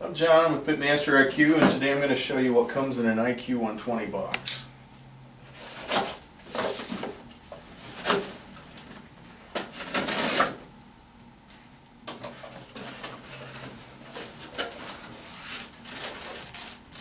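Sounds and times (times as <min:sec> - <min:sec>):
cardboard flaps scraping: 0:12.3 - 0:17.0
cardboard rustling: 0:12.3 - 0:17.0.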